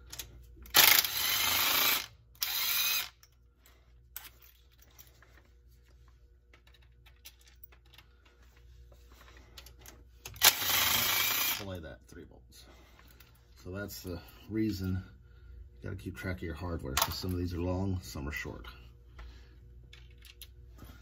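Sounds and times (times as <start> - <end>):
power driver spinning bolts: 0.0 - 3.2, 10.3 - 11.7.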